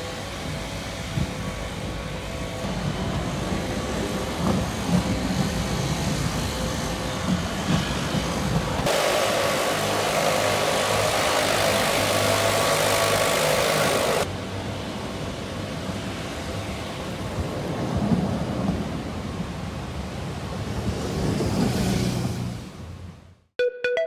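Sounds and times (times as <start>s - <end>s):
tram passing with low rumble: 0.0s - 13.6s, 14.2s - 23.5s
tram bumps: 2.6s - 8.9s
leaf blowers running: 8.9s - 14.3s.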